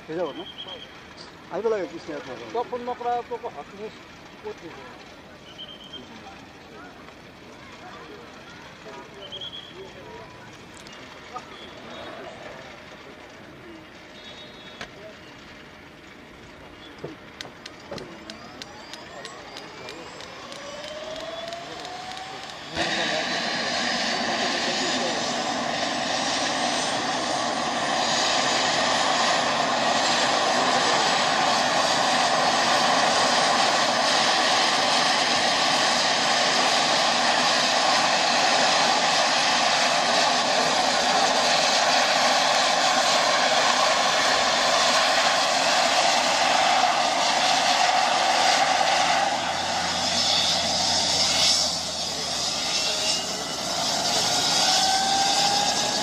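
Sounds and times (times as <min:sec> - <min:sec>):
helicopter turbine and rotor noise: 0:00.0 - 0:56.0
high turbine whine rising: 0:15.0 - 0:56.0.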